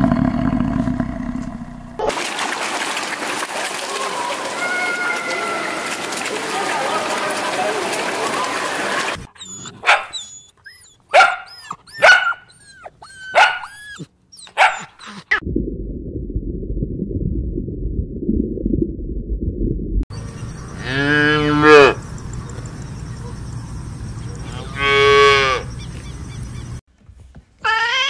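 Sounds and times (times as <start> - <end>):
puppy barking and yipping: 9.1 - 15.4
low muffled rumble: 15.4 - 20.1
calf mooing: 20.8 - 22.0, 24.5 - 25.7.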